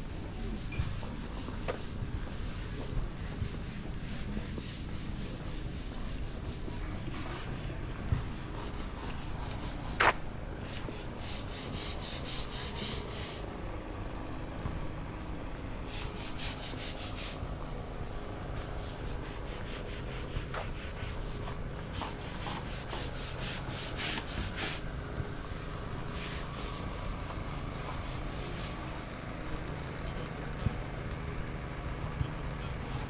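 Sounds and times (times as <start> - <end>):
brush scrubbing stone paving: 8.2 - 13.4, 15.9 - 17.4, 18.0 - 29.1.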